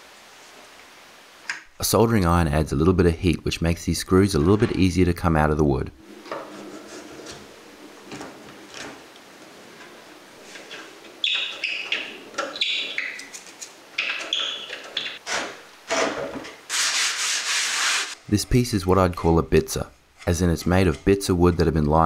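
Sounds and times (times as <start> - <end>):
rubbing sound: 6.2 - 9.0, 16.7 - 21.9
squeaking screws in wood: 10.5 - 16.2.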